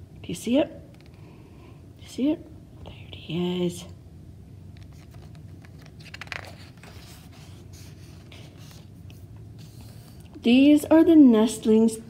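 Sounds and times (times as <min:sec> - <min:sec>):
faint low hum: 0:00.0 - 0:12.0
book pages rustling: 0:04.8 - 0:10.4.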